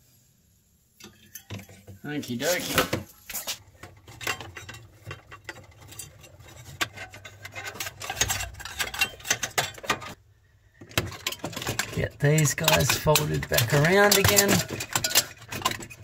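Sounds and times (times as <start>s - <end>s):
clicks and taps of handling metal: 10.8s - 16.0s.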